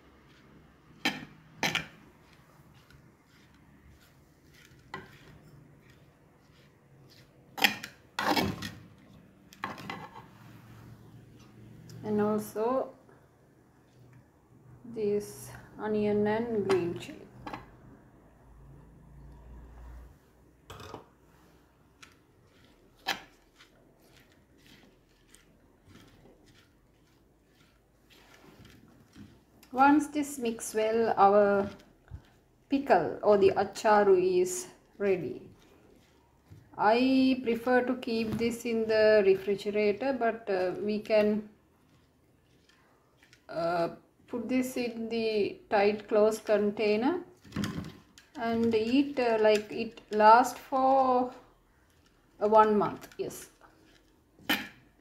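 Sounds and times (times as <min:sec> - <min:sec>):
spoon stirring in a clay pot: 0:00.0 - 0:12.5, 0:21.9 - 0:55.0
spoon scraping a pot: 0:00.1 - 0:08.9, 0:22.0 - 0:32.3.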